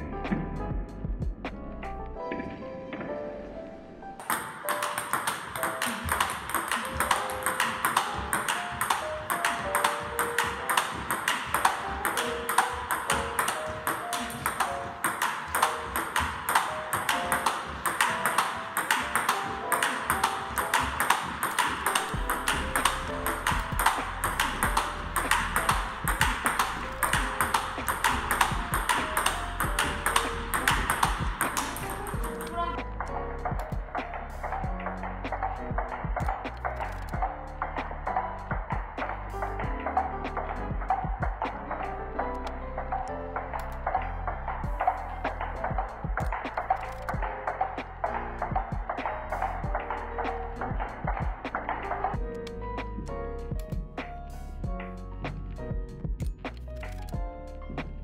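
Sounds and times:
background music: 0:00.0 - 0:58.0
table tennis ball clicking: 0:04.2 - 0:35.6, 0:43.4 - 0:52.4.

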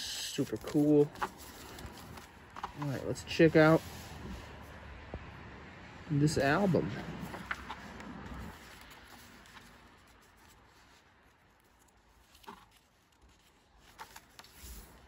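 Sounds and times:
paper pages rustling: 0:00.0 - 0:04.6, 0:07.0 - 0:15.0
soft page flap: 0:00.4 - 0:03.1, 0:12.2 - 0:15.0.

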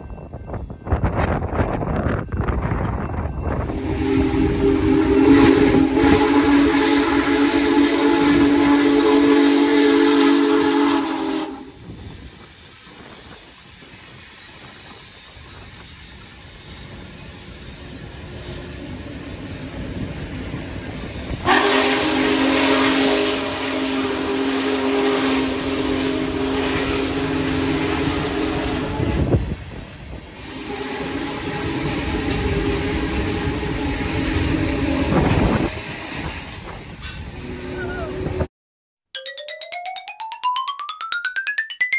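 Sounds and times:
locomotive rumbling past: 0:00.9 - 0:38.5
steam locomotive whistle: 0:03.6 - 0:12.1, 0:21.4 - 0:29.4, 0:30.3 - 0:36.3
rush of steam: 0:03.6 - 0:20.0, 0:21.0 - 0:38.4.

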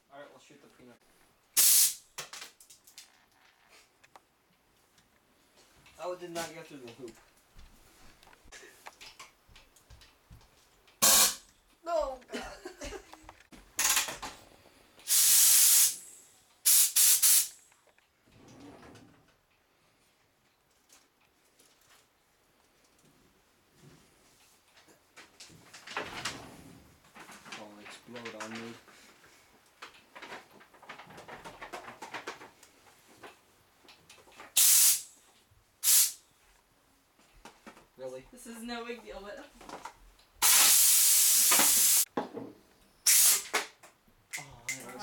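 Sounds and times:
compressed air blasts: 0:01.6 - 0:02.0, 0:11.0 - 0:11.5, 0:15.0 - 0:17.6, 0:34.6 - 0:35.2, 0:35.8 - 0:36.2, 0:40.4 - 0:42.1, 0:43.0 - 0:43.7.

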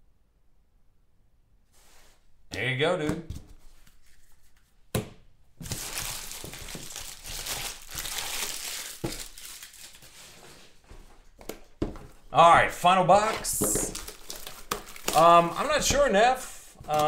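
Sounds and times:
plastic wrapping crinkling: 0:05.6 - 0:10.4, 0:13.2 - 0:17.0.

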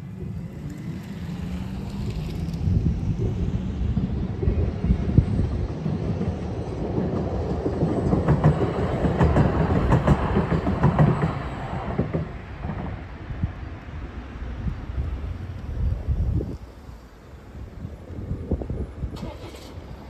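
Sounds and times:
tram wheels clacking over rails: 0:00.0 - 0:13.7.

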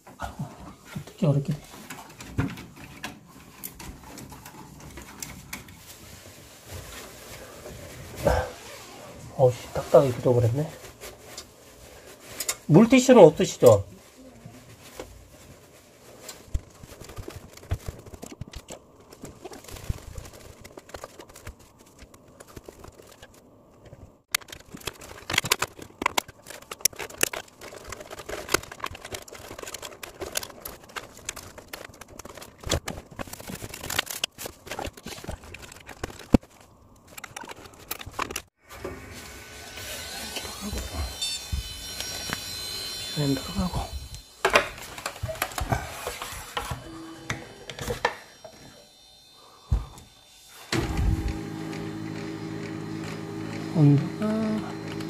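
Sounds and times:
gloved hands rustling and clicking: 0:14.9 - 0:38.6.

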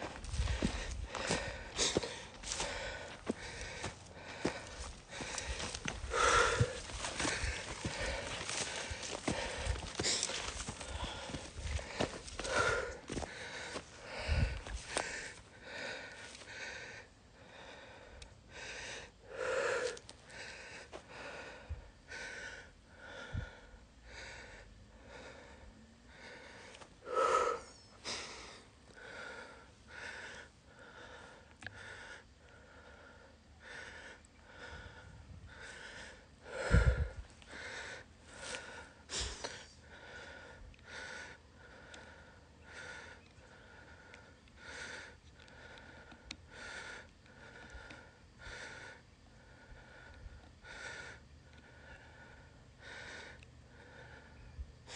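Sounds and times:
footsteps on dry ground: 0:00.0 - 0:15.5
person breathing hard: 0:00.0 - 0:54.9.

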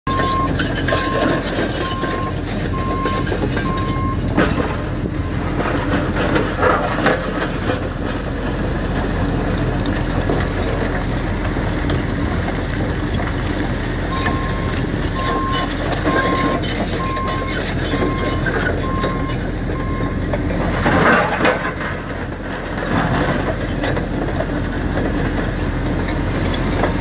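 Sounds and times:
reversing alarm beeping: 0:00.1 - 0:04.2, 0:14.1 - 0:20.3
diesel engine running: 0:00.1 - 0:27.0.

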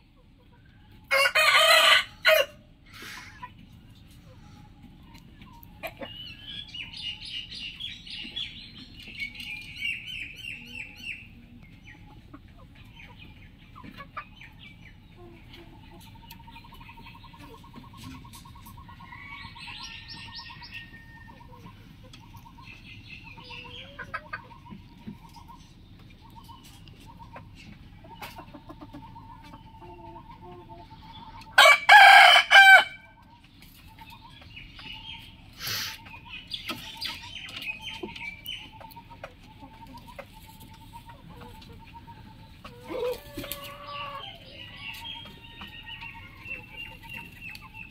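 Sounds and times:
rooster crowing: 0:01.1 - 0:02.6, 0:31.6 - 0:33.1
birds chirping faintly: 0:33.0 - 0:47.9.

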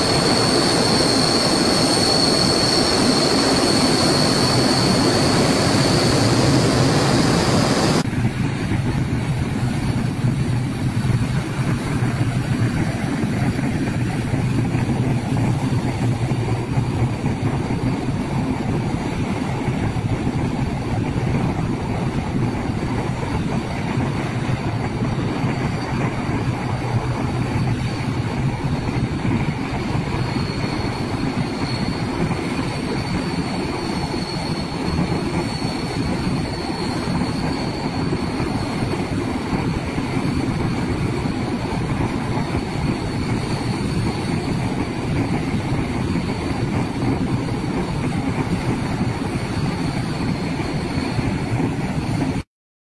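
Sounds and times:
faint high whine: 0:00.0 - 0:08.0
turboprop engines roaring: 0:00.0 - 0:52.4.

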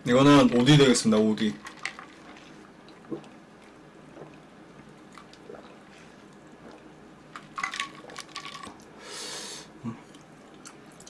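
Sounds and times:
mouth clicks and gulps: 0:02.2 - 0:09.0.

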